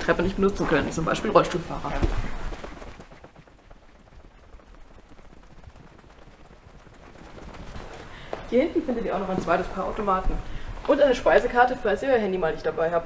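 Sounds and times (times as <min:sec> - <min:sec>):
footsteps on hard floor: 0:08.3 - 0:11.2.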